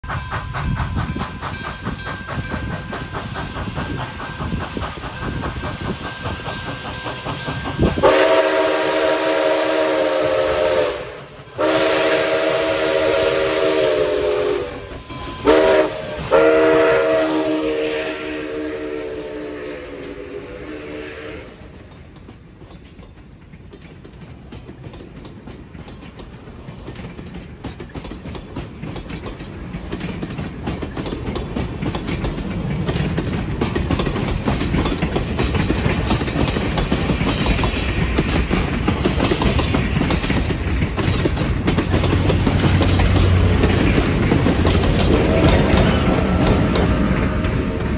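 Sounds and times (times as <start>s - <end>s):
diesel locomotive engine drone: 0.0s - 47.9s
train wheels clicking over rail joints: 0.0s - 47.9s
steam locomotive chime whistle: 3.8s - 21.8s, 44.9s - 47.9s.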